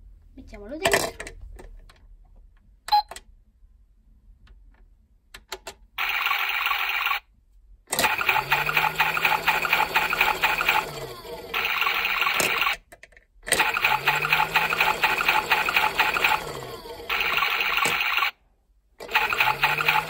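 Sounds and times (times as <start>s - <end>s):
pulsing electronic washing sound: 6.0s - 7.2s, 8.0s - 12.8s, 13.6s - 18.3s, 19.0s - 20.0s
toy drum motor humming: 6.0s - 7.2s, 8.0s - 12.8s, 13.5s - 18.3s, 19.0s - 20.0s.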